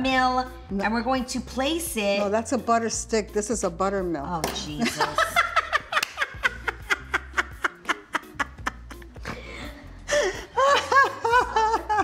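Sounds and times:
women laughing hard: 4.8s - 12.0s.

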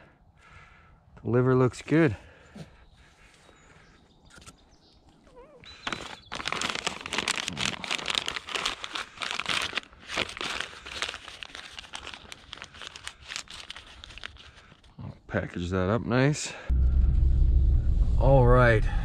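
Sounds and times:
paper bag crinkling: 5.6s - 14.9s.

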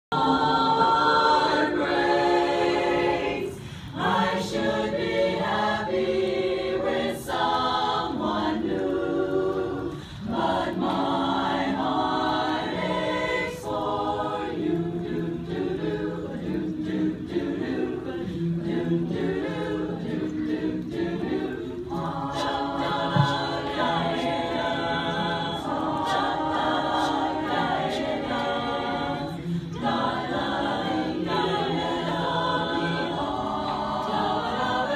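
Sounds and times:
choir singing a cappella: 0.0s - 34.9s.

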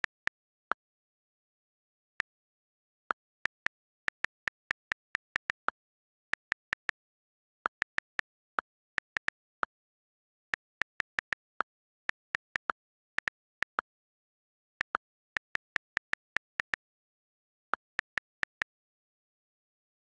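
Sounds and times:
on-screen keyboard clicks: 3.1s - 14.0s, 14.6s - 17.0s, 17.8s - 18.8s.

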